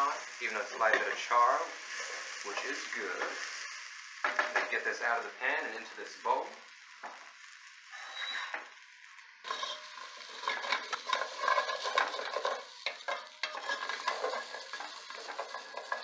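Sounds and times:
pot sizzling: 0.0 - 16.0
wooden spoon scraping pot: 9.5 - 16.0.

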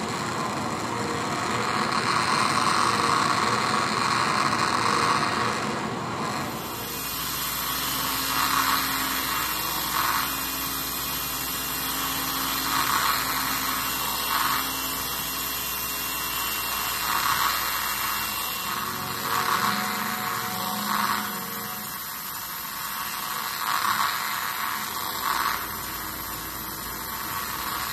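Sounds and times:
whirring mechanical noise: 0.0 - 27.9
electronic hiss: 16.5 - 27.9
low hum: 16.7 - 23.5.

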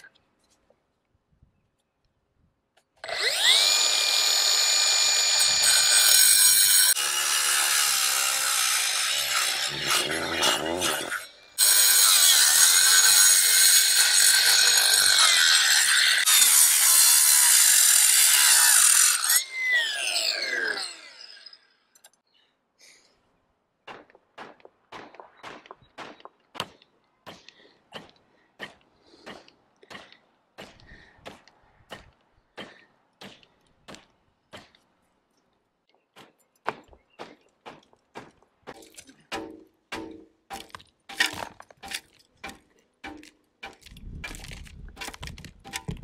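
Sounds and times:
angle grinder cutting wall: 3.0 - 21.6.

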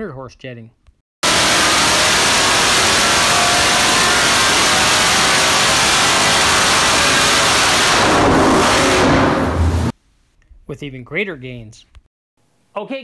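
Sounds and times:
engine running hard and loud: 1.2 - 9.9.

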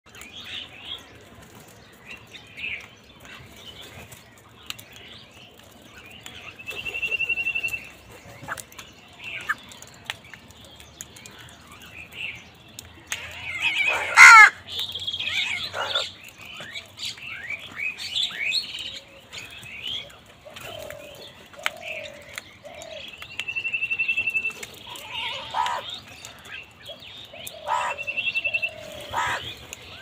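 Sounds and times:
crows calling: 13.2 - 14.6, 15.2 - 16.1, 24.9 - 26.0, 27.4 - 29.6
loud cawing: 13.9 - 14.6.

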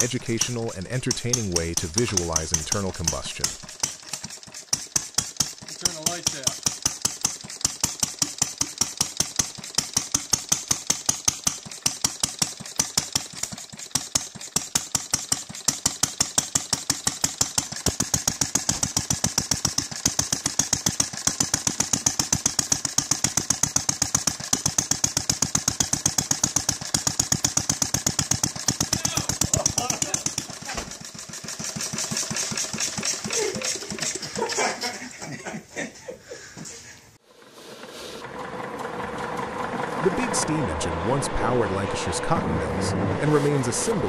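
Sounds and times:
small engine popping: 0.0 - 34.8.

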